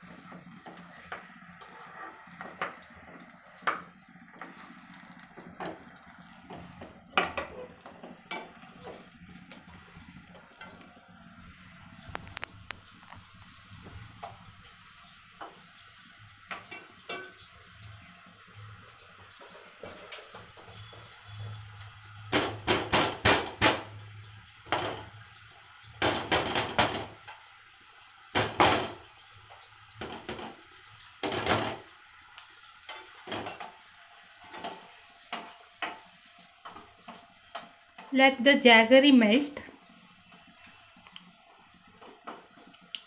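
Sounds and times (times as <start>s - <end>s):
cookware clattering and splashing: 5.4s - 9.2s, 16.4s - 17.7s, 22.3s - 24.0s, 24.6s - 25.2s, 26.0s - 27.4s, 28.3s - 29.2s, 29.9s - 32.0s, 32.8s - 38.1s.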